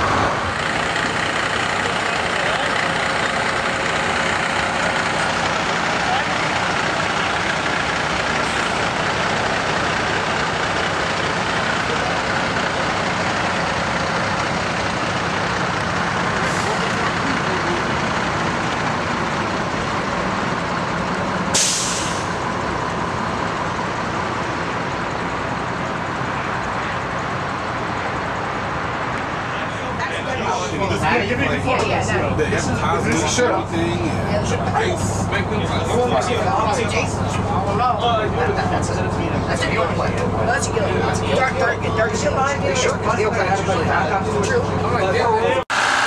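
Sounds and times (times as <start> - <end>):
bus diesel engine running: 0.0 - 46.0
air brake hiss: 21.5 - 22.4.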